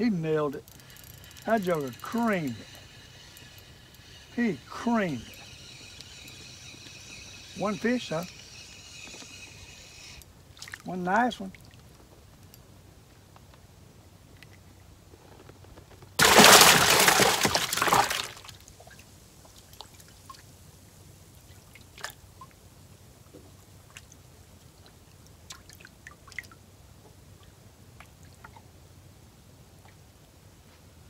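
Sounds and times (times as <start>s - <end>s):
small ticks: 0.5s - 10.8s
water splashing and pouring: 16.2s - 18.6s.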